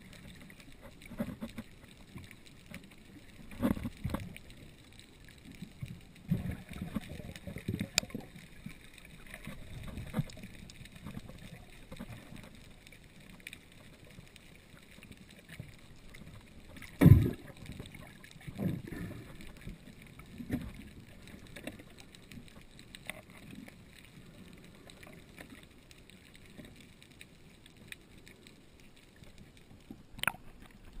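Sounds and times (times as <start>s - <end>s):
muffled underwater wash: 0.0s - 31.0s
dull underwater thumps: 16.9s - 17.5s.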